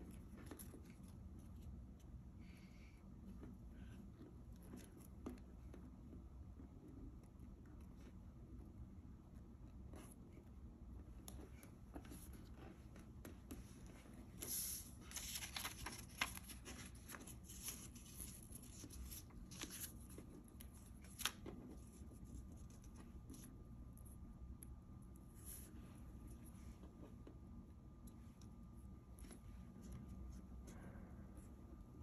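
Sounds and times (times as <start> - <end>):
paper rustling and crinkling: 13.8 - 23.5.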